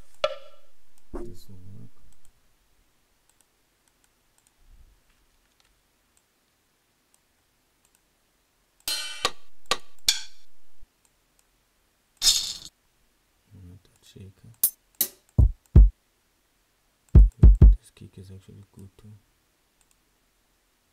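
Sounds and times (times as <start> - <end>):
faint mouse clicks: 3.3 - 6.3, 7.1 - 8.1, 19.8 - 20.0.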